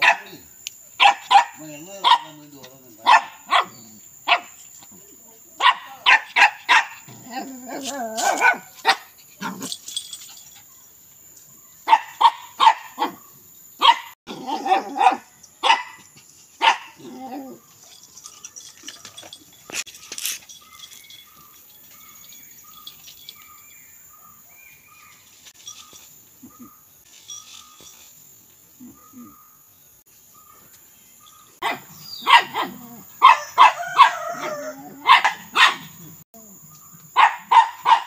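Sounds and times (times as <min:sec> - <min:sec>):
dog barking: 0:00.0 - 0:00.4, 0:01.0 - 0:02.4, 0:03.0 - 0:04.6, 0:05.6 - 0:09.7, 0:11.8 - 0:13.2, 0:13.8 - 0:17.6, 0:31.6 - 0:36.1, 0:37.1 - 0:38.0.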